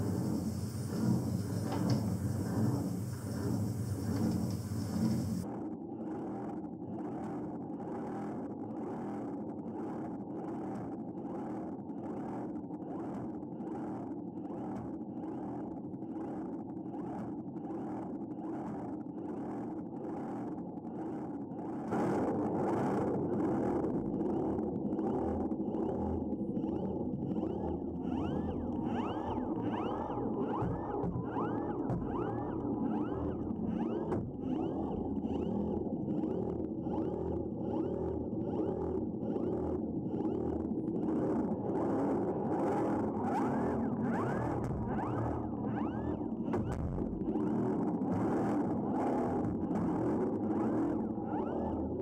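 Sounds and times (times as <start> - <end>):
motor humming underwater: 0.0 - 5.4
steady low hum: 0.0 - 5.8, 24.0 - 42.4.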